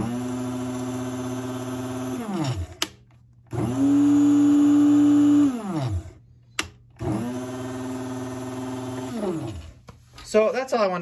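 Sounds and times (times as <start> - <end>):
coffee grinder motor whirring: 0.0 - 6.2, 6.9 - 9.8
grinder switch click: 6.5 - 6.8.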